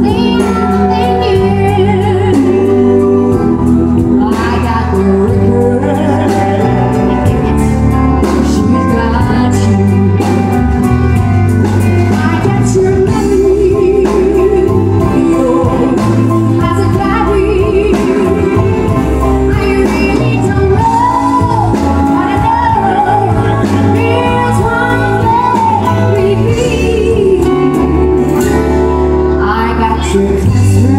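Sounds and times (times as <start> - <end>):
woman singing into a microphone: 0.0 - 7.6, 8.2 - 30.9
band playing: 0.0 - 30.9.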